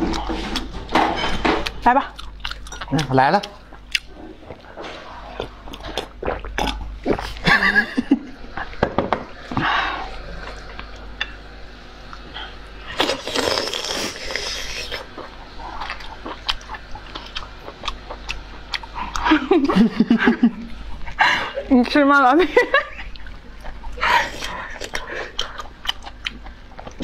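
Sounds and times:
chewing with wet clicks: 1.6s - 4.7s, 5.3s - 7.4s, 14.9s - 19.5s, 23.0s - 27.0s.

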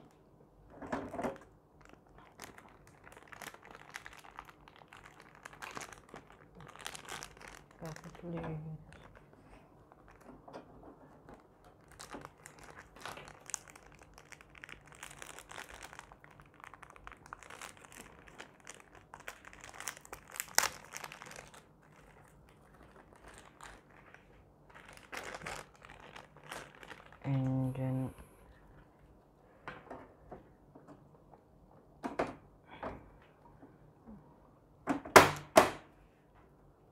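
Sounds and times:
plastic bag crinkling: 0.0s - 28.0s.

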